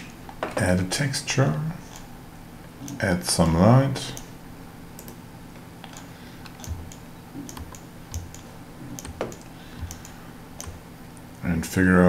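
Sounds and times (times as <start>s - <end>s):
keyboard and mouse clicks: 5.0s - 5.2s, 5.8s - 11.3s.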